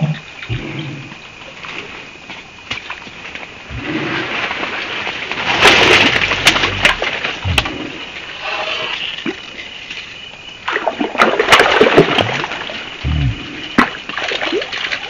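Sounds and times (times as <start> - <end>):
fish splashing in water: 10.7 - 12.9, 13.8 - 15.0.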